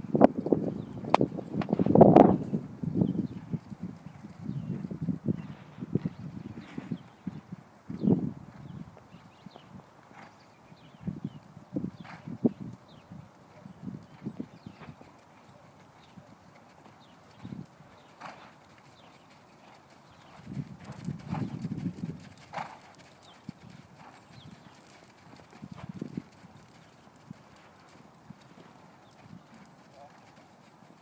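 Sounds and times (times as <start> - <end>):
horse hoofbeats: 16.0 - 31.0.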